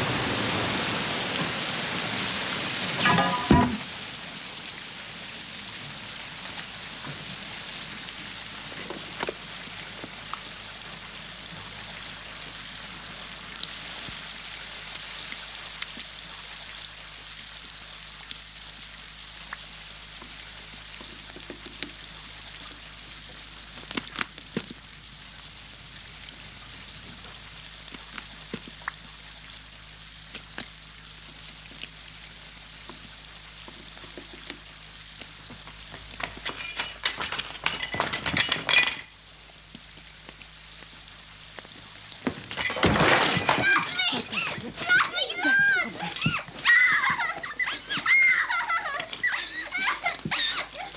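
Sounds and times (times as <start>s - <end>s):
water trickling and dripping: 1.1s - 42.8s, 43.6s - 50.9s
small clicks and ticks: 8.8s - 10.5s, 14.9s - 16.1s, 19.4s - 25.8s, 27.0s - 29.2s, 32.8s - 38.7s, 39.4s - 42.2s.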